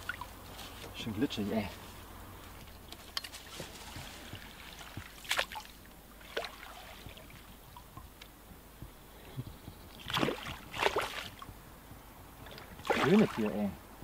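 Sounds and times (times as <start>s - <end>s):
fish splashing at water surface: 10.0s - 11.4s, 12.5s - 13.4s.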